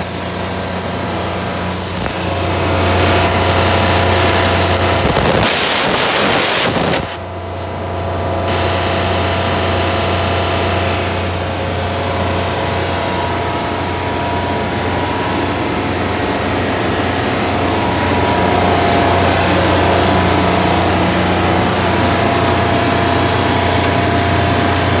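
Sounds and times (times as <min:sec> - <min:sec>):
generator engine running: 0:00.0 - 0:25.0
hiss: 0:04.5 - 0:07.2.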